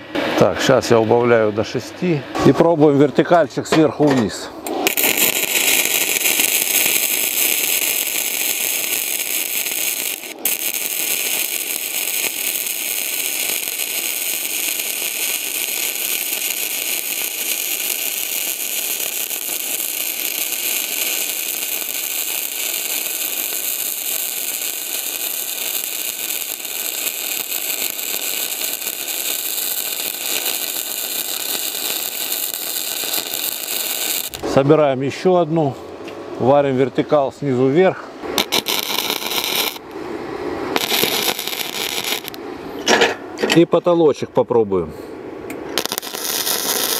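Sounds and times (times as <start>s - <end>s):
welding arc crackle: 4.7s - 34.6s, 38.4s - 40.0s, 40.7s - 42.4s, 45.7s - 46.9s.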